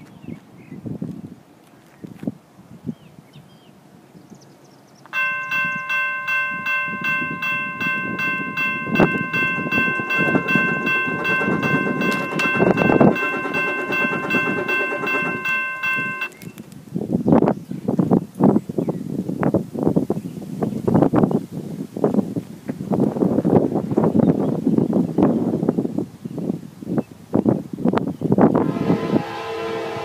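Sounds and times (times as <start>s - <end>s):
crossing bell ringing: 5.1s - 16.6s.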